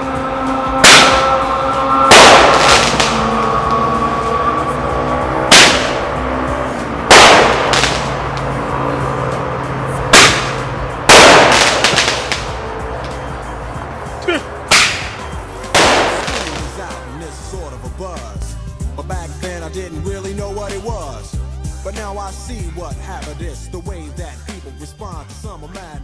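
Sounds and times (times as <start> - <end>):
background music: 0.0 - 26.0
roman candle bangs: 0.8 - 3.6.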